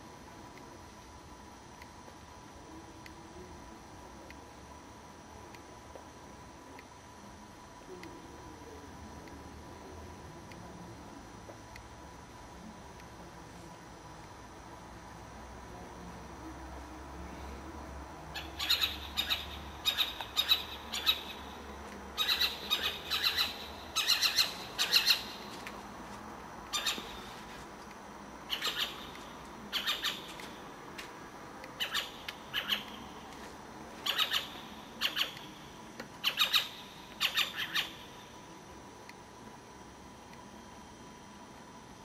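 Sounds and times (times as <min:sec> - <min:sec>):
owl squawking: 0:18.4 - 0:21.5, 0:22.2 - 0:25.5, 0:26.7 - 0:27.3, 0:28.5 - 0:29.1, 0:29.7 - 0:30.3, 0:31.8 - 0:33.0, 0:34.0 - 0:35.4, 0:36.2 - 0:38.0.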